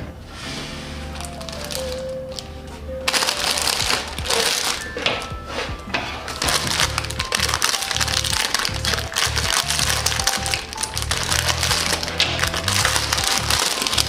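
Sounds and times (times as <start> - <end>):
background music: 0.0 - 14.0
plastic wrapper crinkling: 1.2 - 2.5, 3.1 - 5.2, 6.3 - 14.0.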